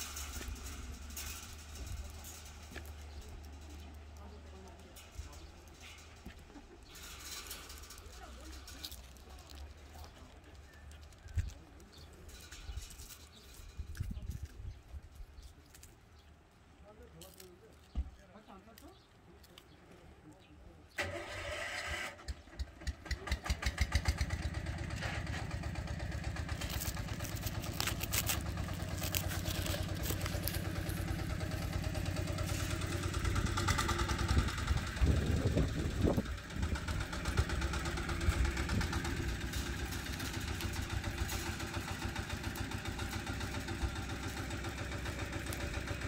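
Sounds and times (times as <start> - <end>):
engine starting and idling: 21.0 - 46.0.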